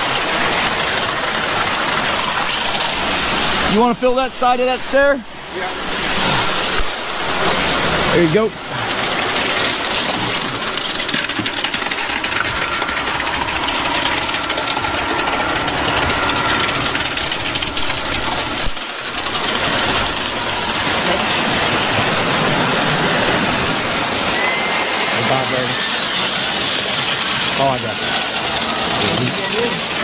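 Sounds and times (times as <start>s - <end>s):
diesel engine running under load: 8.6s - 25.5s.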